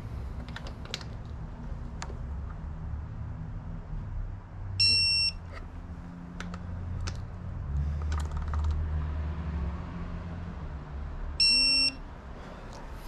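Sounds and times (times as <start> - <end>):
electronic beep: 4.8 - 5.4, 11.4 - 12.0.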